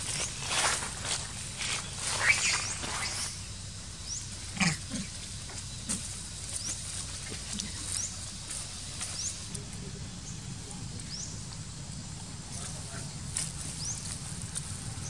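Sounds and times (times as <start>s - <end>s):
monkey grunting: 4.4s - 6.1s.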